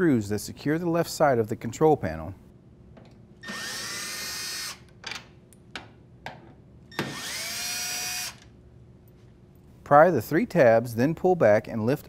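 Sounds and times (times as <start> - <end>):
drill motor whine: 3.4 - 4.8, 6.9 - 8.4.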